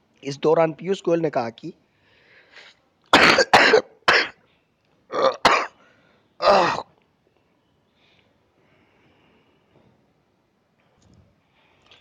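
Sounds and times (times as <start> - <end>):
man coughing: 3.1 - 4.4, 5.1 - 5.8, 6.4 - 6.9.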